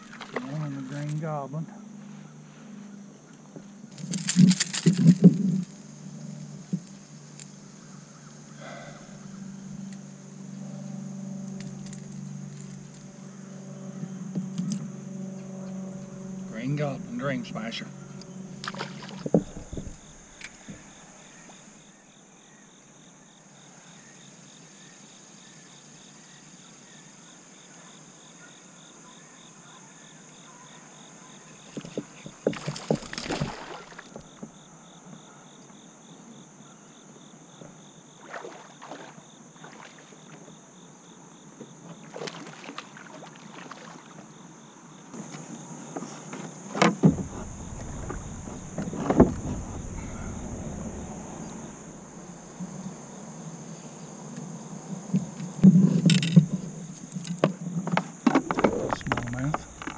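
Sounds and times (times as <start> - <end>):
insect trill: 0.0 - 59.9
water splashing against kayak: 18.6 - 20.9, 31.9 - 34.5, 38.2 - 40.4, 42.0 - 44.2, 46.7 - 52.2
faint hiss: 45.8 - 54.3.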